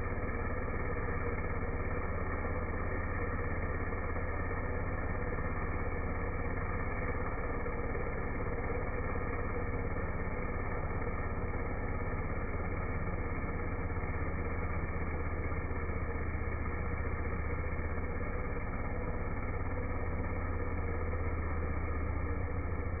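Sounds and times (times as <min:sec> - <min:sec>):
chainsaw deep drone: 0:00.0 - 0:23.0.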